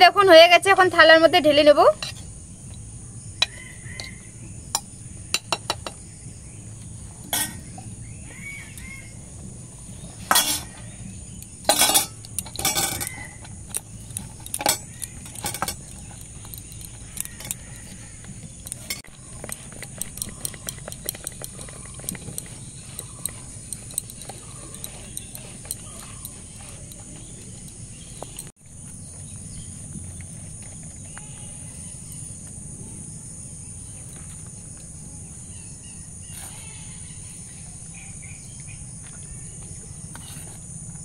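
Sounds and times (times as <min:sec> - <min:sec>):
spoon scraping metal pot: 0:01.8 - 0:02.8, 0:03.4 - 0:06.0, 0:06.7 - 0:28.5, 0:36.3 - 0:36.7, 0:40.1 - 0:40.6
metal clatters: 0:07.2 - 0:08.0, 0:10.0 - 0:28.5.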